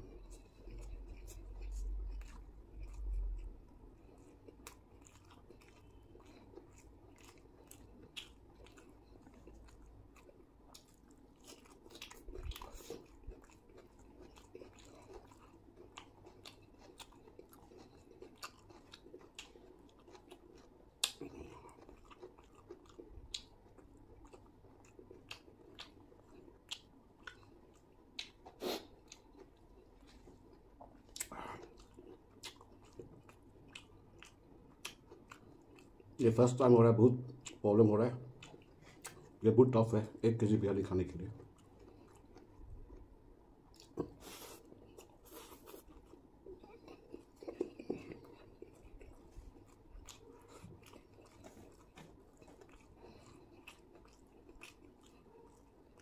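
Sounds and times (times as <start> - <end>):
chewing with wet mouth clicks: 0.0 - 39.4, 41.1 - 56.0.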